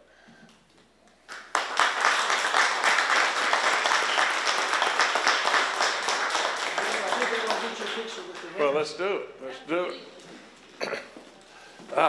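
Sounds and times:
group of people applauding: 0:01.2 - 0:08.9.

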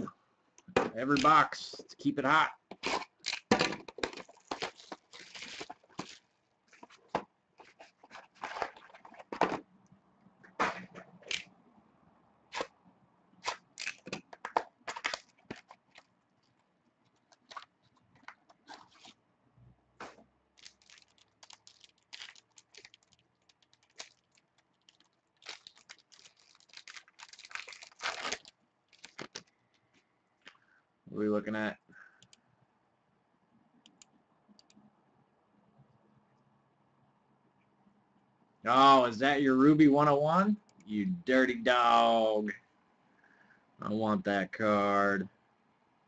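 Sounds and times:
card packs crinkling and tearing: 0:02.8 - 0:07.0, 0:13.4 - 0:16.1, 0:20.6 - 0:29.5.

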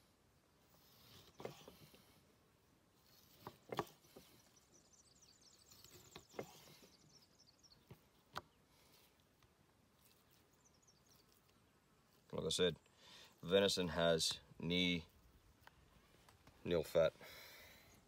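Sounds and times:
faint bird twittering: 0:03.0 - 0:09.2, 0:10.0 - 0:13.9.

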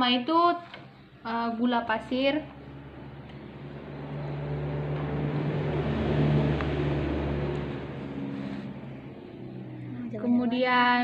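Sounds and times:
vehicle engine passing by: 0:02.0 - 0:10.6.

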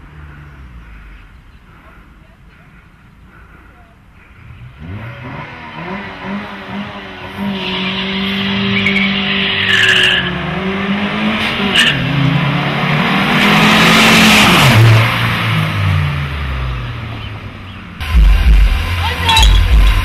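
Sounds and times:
tyres screeching: 0:00.9 - 0:12.3, 0:19.0 - 0:20.0
car rushing past: 0:04.4 - 0:17.6
car engine revving high: 0:04.5 - 0:17.1.

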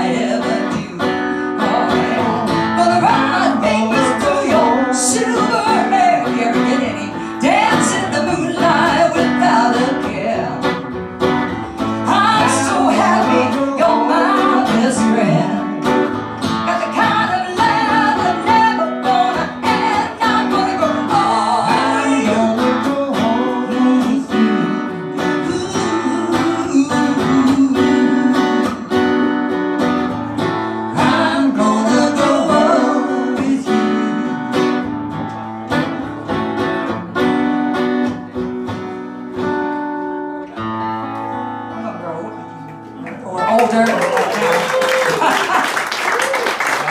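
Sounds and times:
woman singing: 0:00.0 - 0:10.8, 0:12.0 - 0:15.9, 0:16.6 - 0:29.1, 0:30.9 - 0:34.4
strummed acoustic guitar: 0:00.0 - 0:43.5.

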